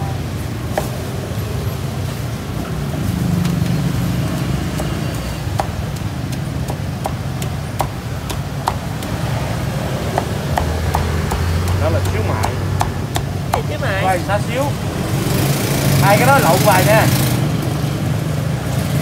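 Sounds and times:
street traffic rumble: 0.0 - 19.0
cleaver chopping on wooden block: 4.3 - 13.8.

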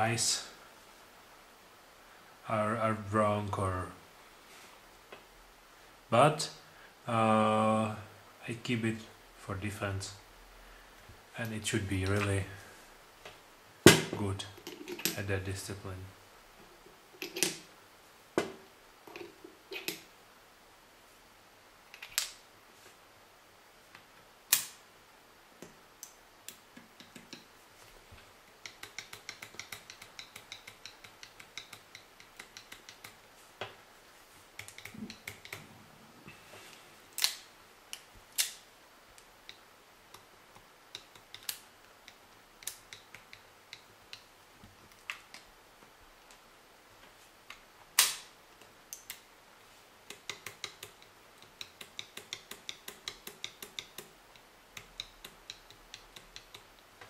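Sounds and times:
cartridges tapping into cylinder: 28.6 - 33.2, 50.1 - 56.8.

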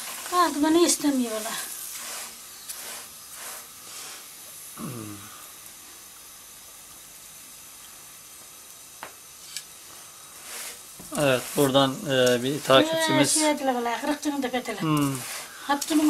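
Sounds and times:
griddle faint steady hiss: 0.0 - 16.0
short falling vocal sound: 4.8 - 5.4
dough rustling: 10.4 - 14.2.

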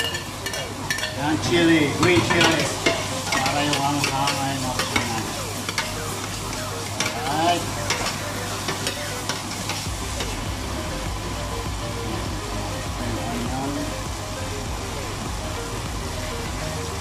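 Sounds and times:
food sizzling in oil: 0.0 - 17.0.

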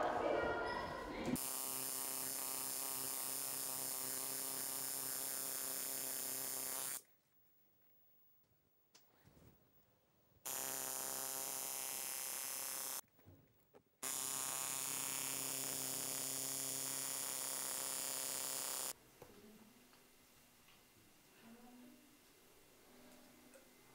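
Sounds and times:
tattoo machine buzzing: 1.4 - 7.0, 10.4 - 13.0, 14.0 - 19.0.

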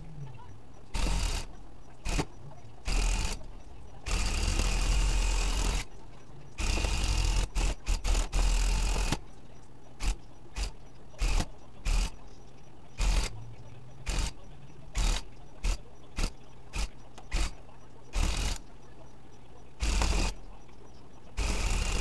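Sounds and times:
electric tufting gun bursts: 0.9 - 5.9, 6.6 - 9.2, 10.0 - 12.2, 13.0 - 13.4, 14.0 - 18.6, 19.8 - 20.4, 21.4 - 22.0.

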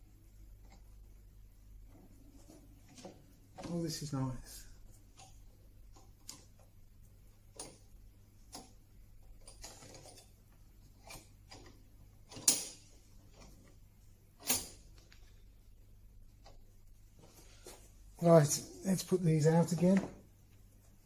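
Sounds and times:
metal clamps clicking and knocking: 11.0 - 12.9
soft rustle: 16.5 - 18.2.

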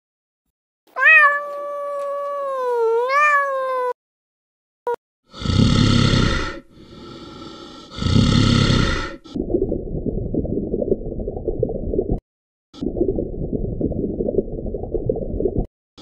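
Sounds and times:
cat meowing: 0.9 - 4.0
bear growling: 5.4 - 9.2.

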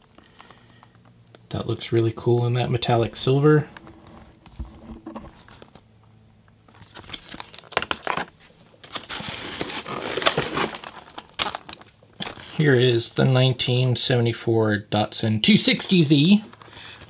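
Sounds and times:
plastic blister packaging crinkling: 6.6 - 12.8, 15.9 - 17.0.

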